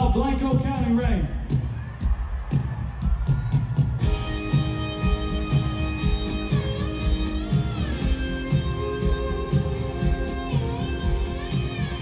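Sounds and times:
steady drum beat: 0:00.0 - 0:12.0
electric guitar notes: 0:04.0 - 0:12.0.

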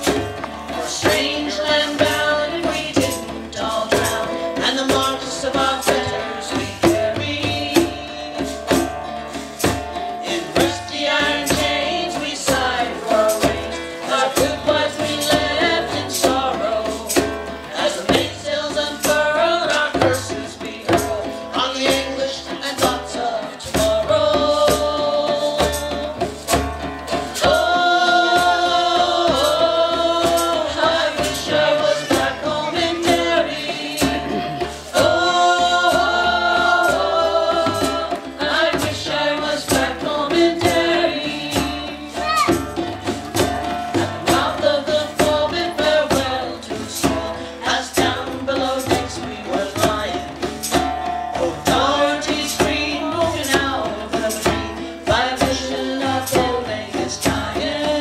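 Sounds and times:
djembes beating: 0:00.0 - 0:58.0
strummed acoustic guitar: 0:00.0 - 0:58.0
voices singing: 0:00.0 - 0:58.0.

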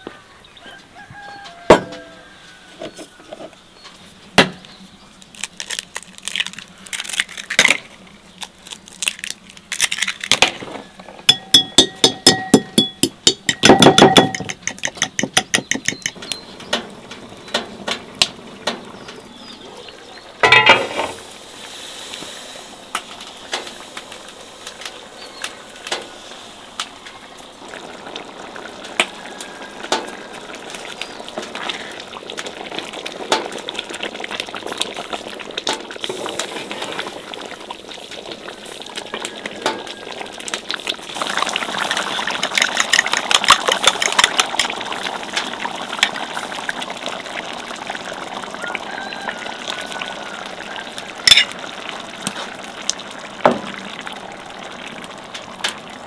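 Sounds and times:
clinks: 0:11.3 - 0:16.4
thick sauce bubbling in pan: 0:21.0 - 0:56.0.

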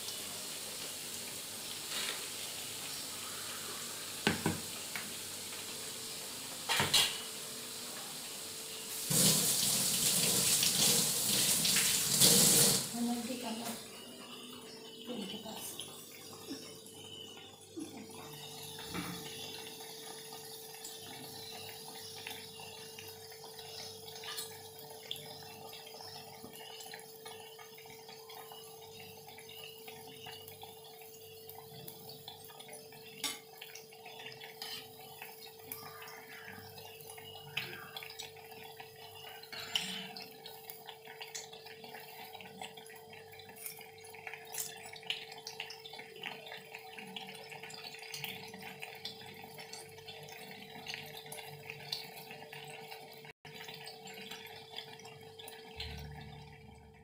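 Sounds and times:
slices deep-frying in oil: 0:00.0 - 0:14.0, 0:14.8 - 0:56.1.

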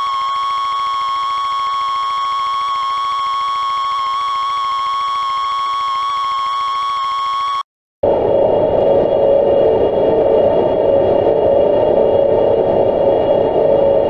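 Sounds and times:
fast low buzz: 0:08.0 - 0:14.0.

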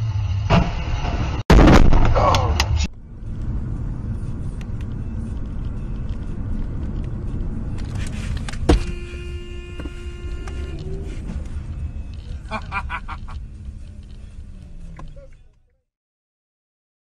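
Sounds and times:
car road noise and engine rumble: 0:00.0 - 0:15.9
car horn: 0:08.1 - 0:12.4.

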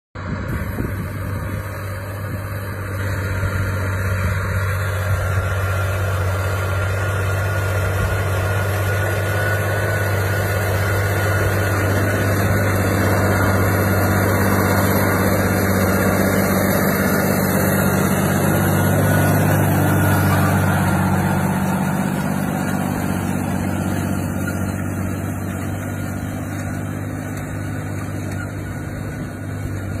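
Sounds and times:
tractor diesel engine drone: 0:00.2 - 0:30.0.

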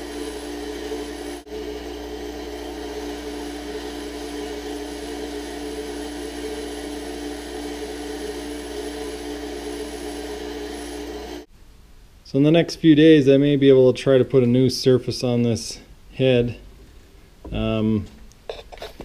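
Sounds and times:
bench grinder grinding steel: 0:00.0 - 0:11.5.

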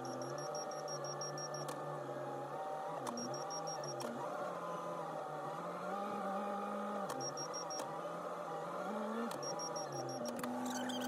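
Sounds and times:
rapid high-pitched beeping: 0:00.0 - 0:01.7, 0:03.2 - 0:04.0, 0:07.2 - 0:07.8, 0:09.4 - 0:11.0.

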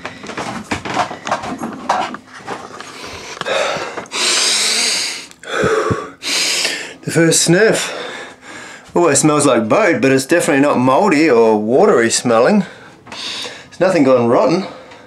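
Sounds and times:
knocks and rustling: 0:00.0 - 0:04.1
man breathing out: 0:03.0 - 0:07.0
man sniffing deeply: 0:03.0 - 0:07.0.

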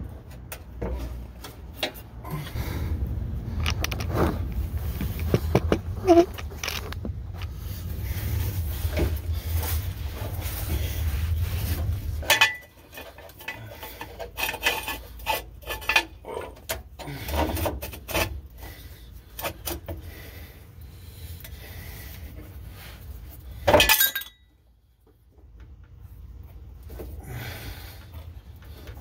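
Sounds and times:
metal clinks and scraping: 0:11.7 - 0:16.7, 0:23.6 - 0:24.6.

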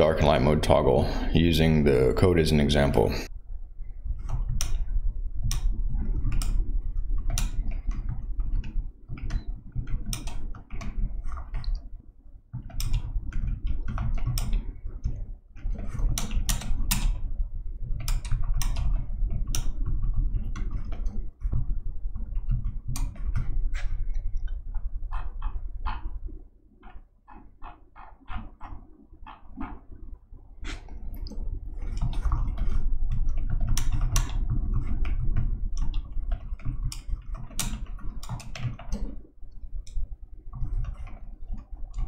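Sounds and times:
typing on computer keyboard: 0:04.2 - 0:11.9, 0:12.6 - 0:26.1, 0:30.7 - 0:39.2.

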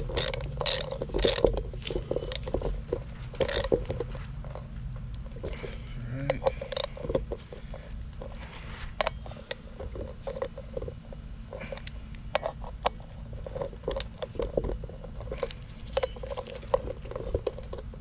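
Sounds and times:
hand tools clicking on bolts: 0:00.0 - 0:04.2, 0:05.1 - 0:07.7
steady low hum: 0:00.0 - 0:18.0.

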